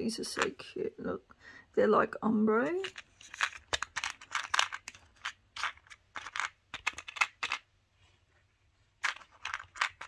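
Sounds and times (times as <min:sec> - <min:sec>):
plastic charms clicking and rattling: 0:02.8 - 0:07.6, 0:09.0 - 0:10.0.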